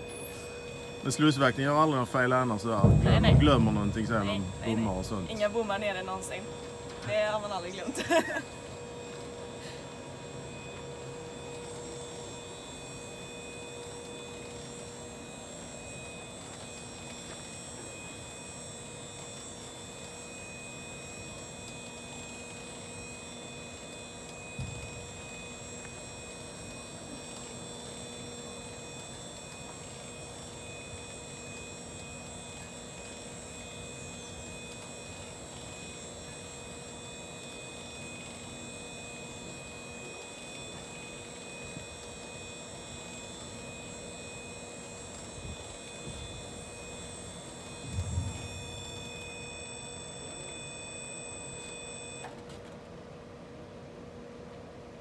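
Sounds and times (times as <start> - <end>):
electric machinery hum: 0.0 - 52.3
short thump: 2.8 - 5.3.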